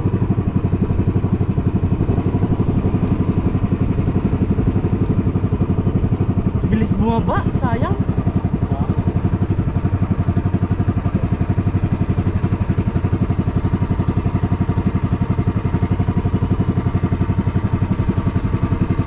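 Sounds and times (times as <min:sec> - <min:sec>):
boat engine chugging: 0:00.0 - 0:19.0.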